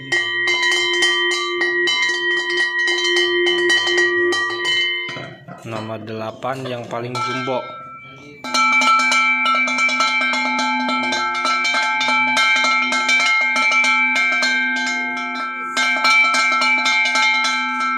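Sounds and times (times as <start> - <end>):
cowbell clanking: 0.0 - 17.9.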